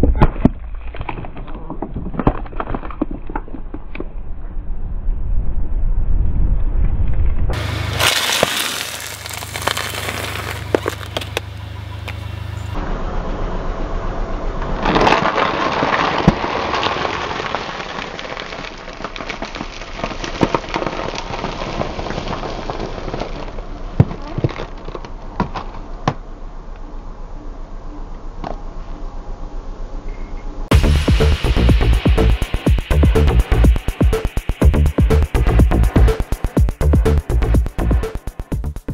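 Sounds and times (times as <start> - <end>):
sharp cracks and pops: 0.0 - 4.2, 7.9 - 11.5, 14.8 - 25.9
tyres crushing plastic packaging: 7.6 - 11.5, 14.8 - 25.8.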